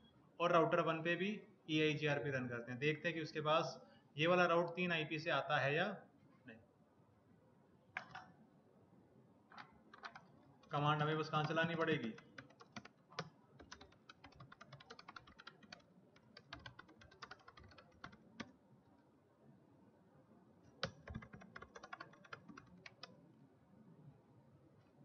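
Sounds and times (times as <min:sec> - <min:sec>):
faint computer keyboard typing: 0:08.0 - 0:08.4, 0:09.5 - 0:18.6, 0:20.7 - 0:23.2.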